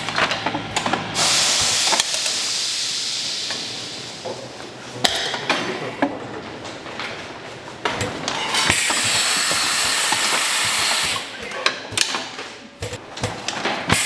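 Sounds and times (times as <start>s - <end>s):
loud hiss: 1.2s - 4.2s, 8.7s - 11.3s
sharp clicks and knocks: 7.8s - 14.0s.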